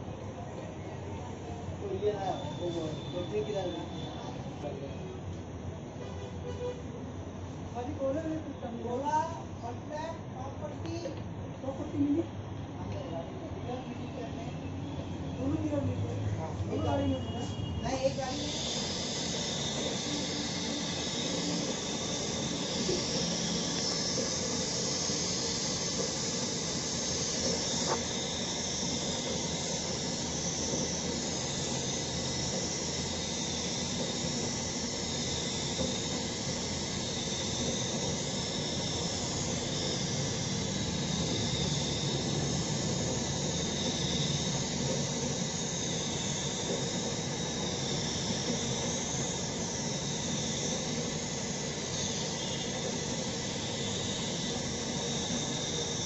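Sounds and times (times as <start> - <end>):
high whistling note: 16.7 - 56.0
spray gun hissing: 17.0 - 56.0.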